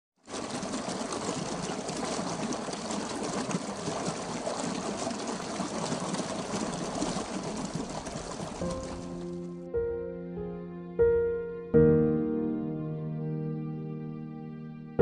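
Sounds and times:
water pouring from a pipe: 0.2s - 9.5s
water splashing into a channel: 0.2s - 9.6s.

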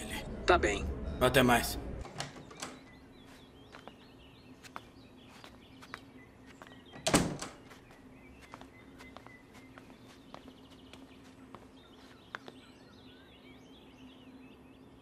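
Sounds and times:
door bumping shut: 7.0s - 7.6s.

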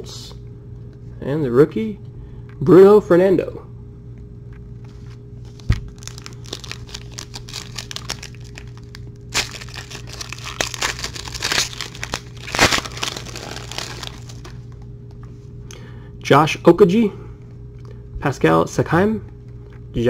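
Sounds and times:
foil pack crinkling and tearing: 5.5s - 14.8s.

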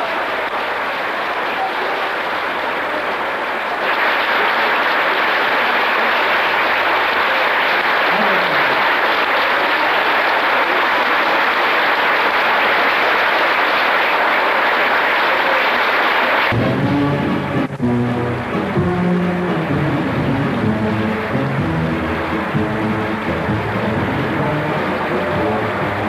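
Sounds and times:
crowd applauding: 0.0s - 26.0s.

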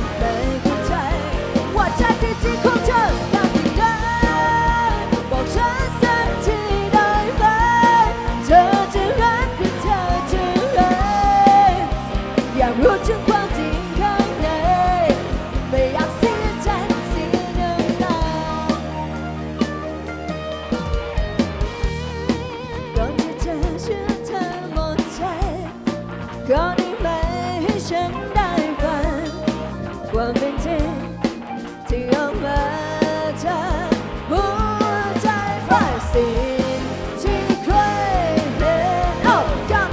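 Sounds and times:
person singing: 0.0s - 19.0s, 22.9s - 25.7s, 31.8s - 39.9s
drum kit steady beat: 0.0s - 39.9s
electric guitars: 0.0s - 39.9s
keyboard: 0.0s - 39.9s.

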